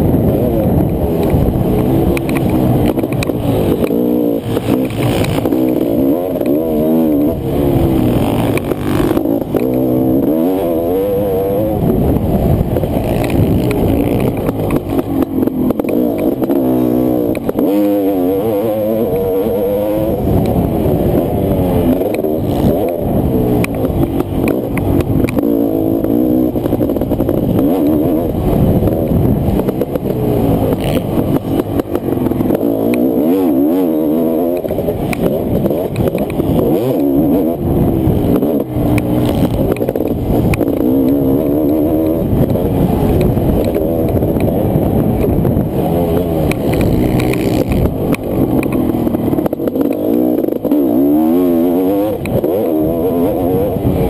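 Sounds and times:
two-stroke motorcycle engine revving: 0.0s - 54.0s.

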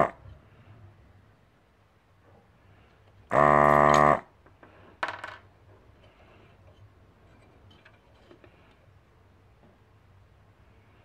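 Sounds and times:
desoldering pump buzzing: 3.3s - 4.2s.

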